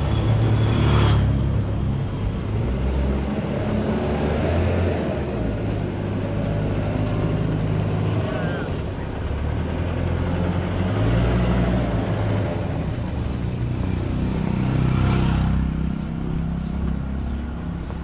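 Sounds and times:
motorcycle passing close by: 14.0s - 16.1s.

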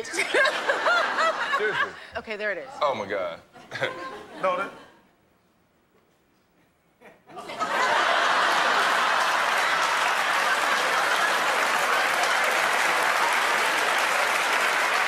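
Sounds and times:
audience applauding: 7.5s - 15.0s.

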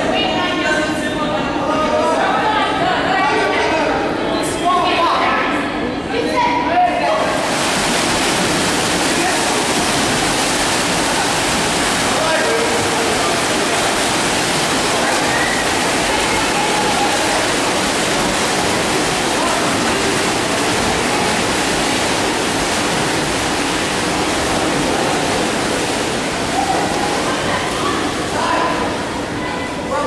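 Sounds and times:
swimmers splashing in pool: 7.0s - 30.0s
faint shouting voices: 11.3s - 20.6s.

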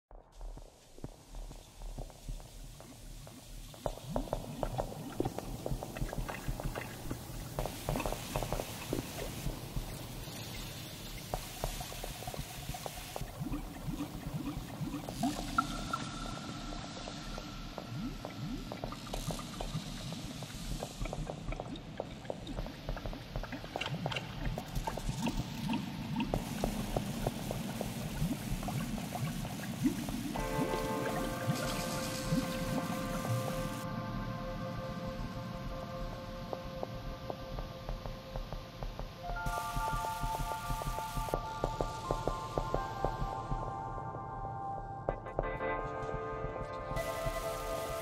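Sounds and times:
crackling clicks and blips: 0.1s - 44.4s
electronic music: 26.4s - 36.1s, 39.2s - 48.0s.

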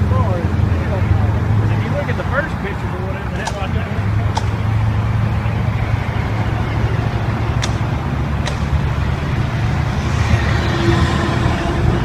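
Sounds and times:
vehicle engine rumbling: 0.0s - 12.0s.

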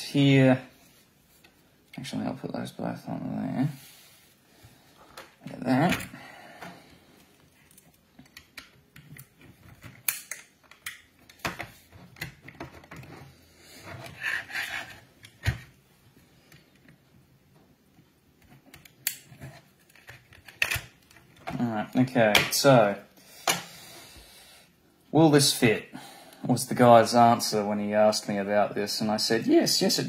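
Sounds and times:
plastic parts clicking and tapping: 7.7s - 13.2s.

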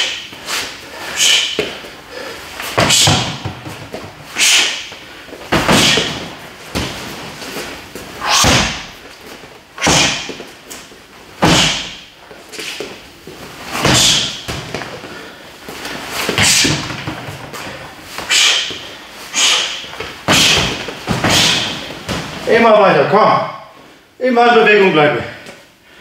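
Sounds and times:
swooshes of punches and kicks: 5.5s - 7.0s, 8.2s - 9.0s, 11.4s - 12.0s.

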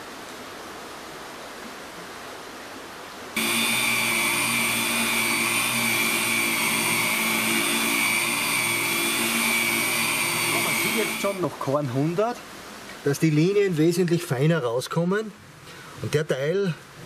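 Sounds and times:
angle grinder whining: 3.4s - 11.5s
running water hiss: 9.0s - 17.0s.

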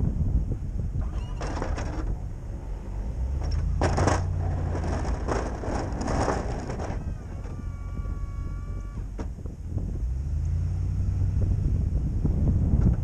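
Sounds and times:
truck engine running: 0.5s - 13.0s
snowplow blade scraping snow: 1.8s - 8.9s.

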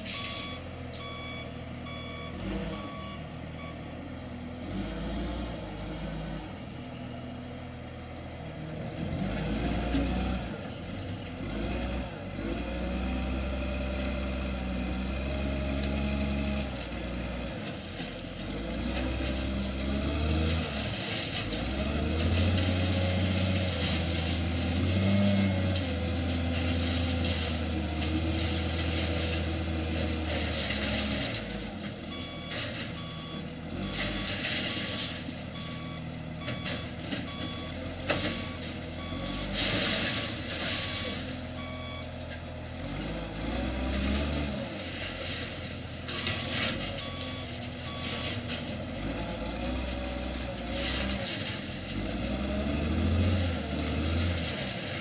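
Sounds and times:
diesel engine running under load: 0.0s - 55.0s
reversing alarm beeping: 0.1s - 3.9s, 32.0s - 42.2s, 47.0s - 48.4s.

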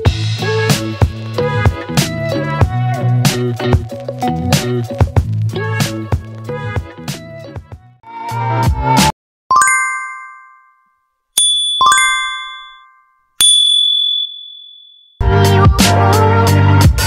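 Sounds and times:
chime dings: 9.5s - 15.2s.

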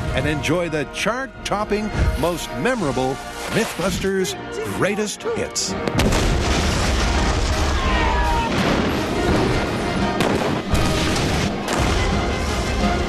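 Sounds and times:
background music: 0.0s - 13.0s
large explosions booming: 5.8s - 12.6s.

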